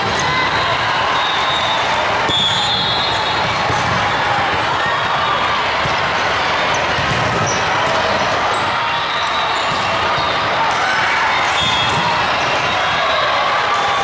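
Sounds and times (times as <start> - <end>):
murmur of many voices: 0.0 - 14.0
volleyballs hit and bouncing: 1.9 - 8.8, 9.5 - 13.1.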